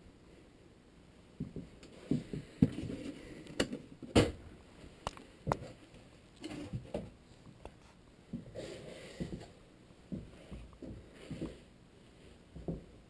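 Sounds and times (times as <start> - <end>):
footsteps: 7.7 - 13.0.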